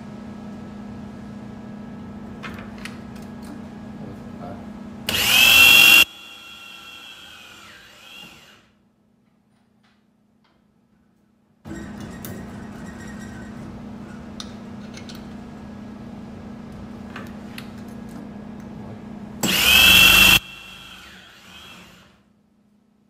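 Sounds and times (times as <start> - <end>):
drill bit whining into metal: 5.1 - 8.7, 19.4 - 22.2
electric drill humming: 5.1 - 8.7, 19.4 - 22.2.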